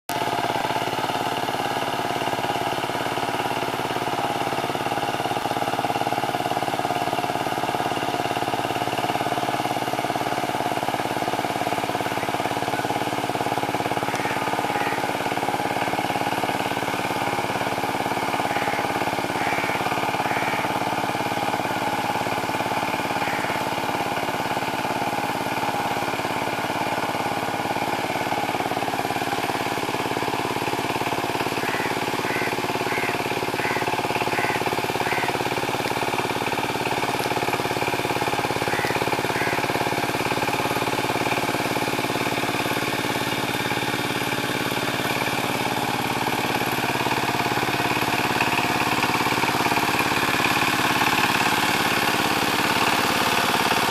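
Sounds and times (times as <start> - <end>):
diesel engine running: 0.1 - 53.9.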